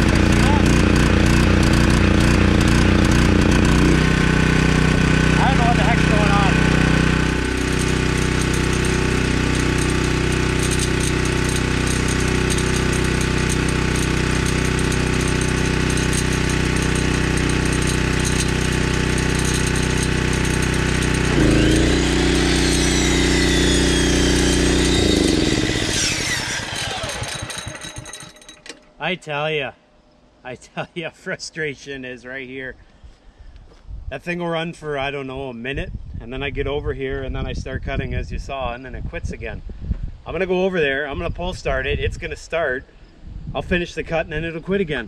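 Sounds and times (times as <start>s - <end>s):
generator engine running: 0.0s - 28.9s
electric miter saw whining: 0.0s - 29.0s.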